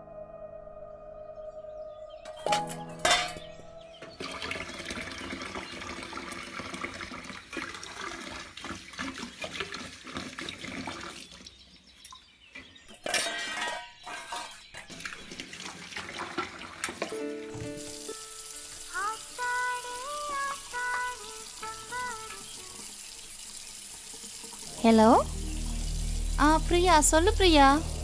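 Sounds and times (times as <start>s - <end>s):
metal bowls clinking: 2.3s - 3.6s, 12.9s - 15.0s
tap water running into steel sink: 4.1s - 11.5s, 14.8s - 28.0s.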